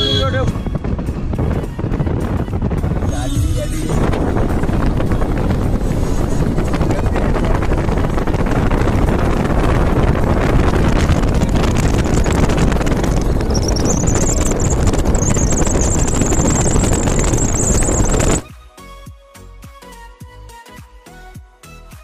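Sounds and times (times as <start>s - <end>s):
moving vehicle noise: 0.0s - 18.4s
wind buffeting microphone: 0.0s - 18.4s
thin high whine: 11.1s - 18.4s.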